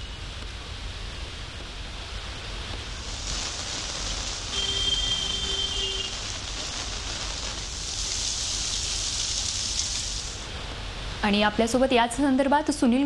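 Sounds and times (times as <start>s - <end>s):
heavy rain hissing: 1.9s - 11.2s.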